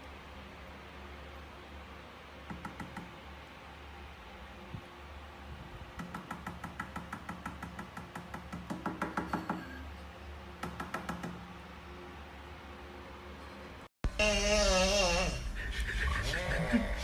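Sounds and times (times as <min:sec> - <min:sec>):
rapid taps on glass: 0:02.5 - 0:03.2, 0:06.0 - 0:09.6.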